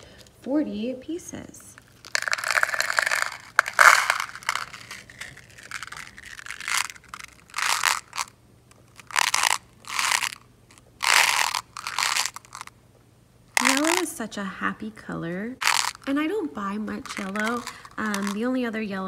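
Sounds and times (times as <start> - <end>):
beads rattling in plastic container: 1.8 - 12.7, 13.6 - 14.1, 15.6 - 18.6.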